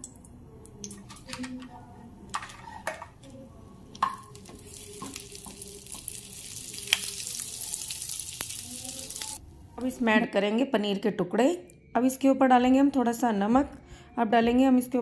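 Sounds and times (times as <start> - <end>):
butter sizzling in hot oil: 4.3 - 9.4.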